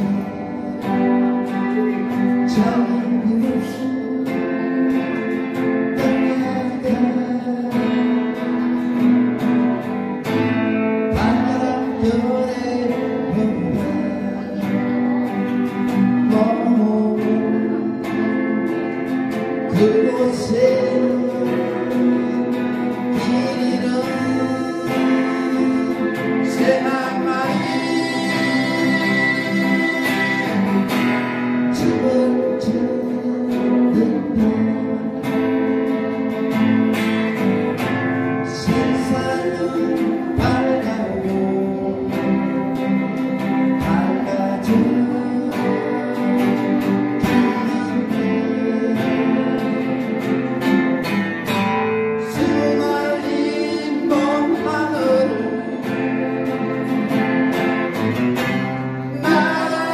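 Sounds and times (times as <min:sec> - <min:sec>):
acoustic guitars playing: 0:00.0 - 0:59.9.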